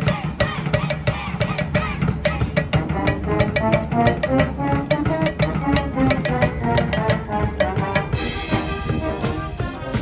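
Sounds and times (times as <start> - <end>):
drum and cymbal strikes: 0.0 - 10.0
brass melody: 2.7 - 10.0.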